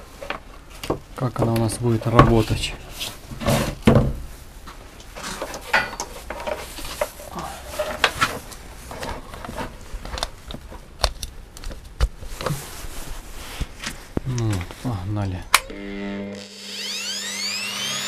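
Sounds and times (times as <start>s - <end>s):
power cords rustling: 0.1s - 14.9s.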